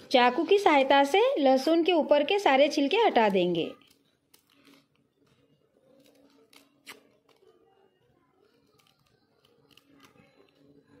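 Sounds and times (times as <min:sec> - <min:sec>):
knife peeling garlic skins: 0:05.9 - 0:07.4, 0:08.6 - 0:10.7.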